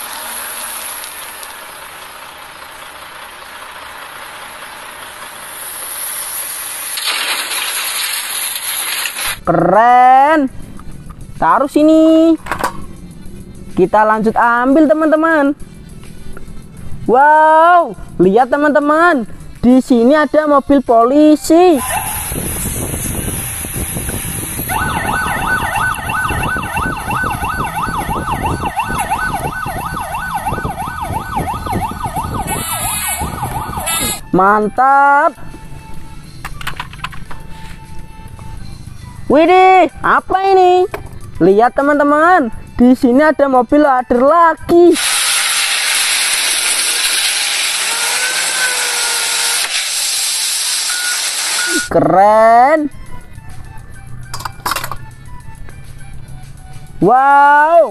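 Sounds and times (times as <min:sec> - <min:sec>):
low traffic rumble: 0:00.0 - 0:07.0, 0:09.4 - 0:44.2
gravel crunching under loader: 0:00.0 - 0:09.4
police siren yelping: 0:21.6 - 0:22.5, 0:24.7 - 0:36.1, 0:47.8 - 0:49.7.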